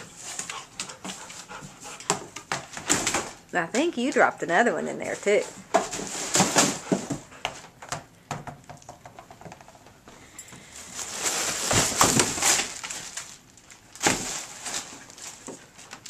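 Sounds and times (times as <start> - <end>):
plastic wrap crinkling: 10.6 - 16.0.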